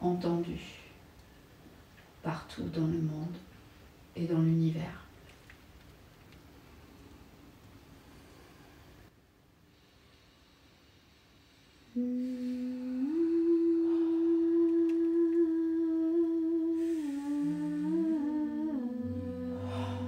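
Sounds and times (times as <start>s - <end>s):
deep held notes drone: 12.0s - 20.0s
person humming held note: 12.0s - 20.0s.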